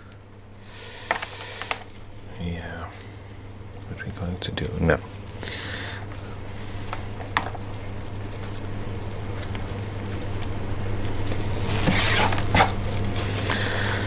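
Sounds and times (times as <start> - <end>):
scratchy rustling: 3.8 - 14.0.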